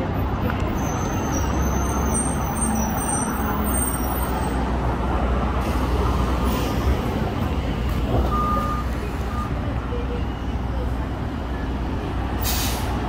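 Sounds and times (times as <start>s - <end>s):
bus engine low rumble: 0.0s - 13.0s
tyres hissing on wet road: 5.3s - 7.3s, 12.3s - 13.0s
short beep: 8.3s - 9.6s.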